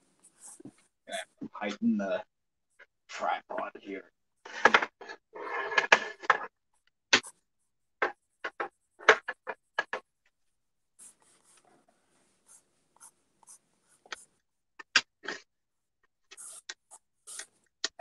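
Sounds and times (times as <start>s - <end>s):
pencil sketching on paper: 0.2s - 0.8s, 10.9s - 14.7s, 16.2s - 17.7s.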